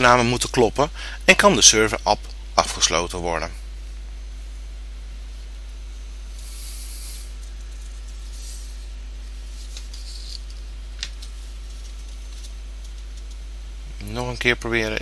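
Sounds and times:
microphone background hum and hiss: 0.0 - 15.0
soft hisses: 5.3 - 13.4.

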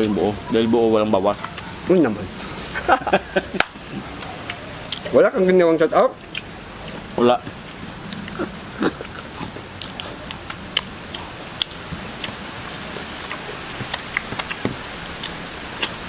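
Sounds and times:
light background noise: 0.0 - 16.0
chewing and mouth smacks: 3.6 - 5.2, 6.2 - 16.0.

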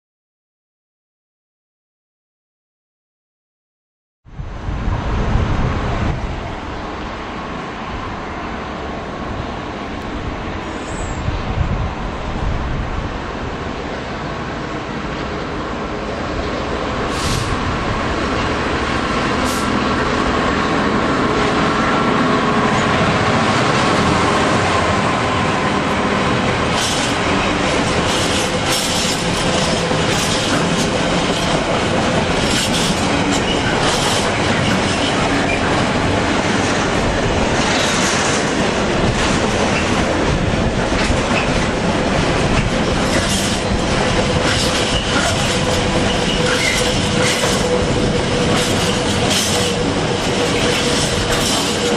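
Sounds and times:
diesel locomotive engine passing: 4.4 - 51.9
train wheels clattering over rail joints: 26.4 - 51.9
wheel squeal: 44.4 - 47.9.

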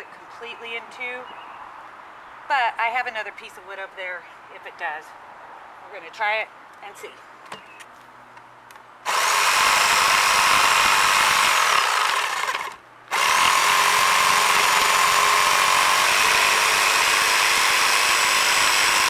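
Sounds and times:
jigsaw cutting wood: 9.1 - 19.0.

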